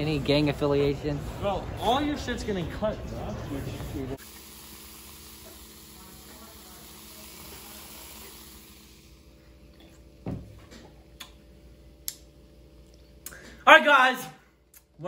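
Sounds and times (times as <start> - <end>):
cola fizzing in a cup: 4.2 - 9.1.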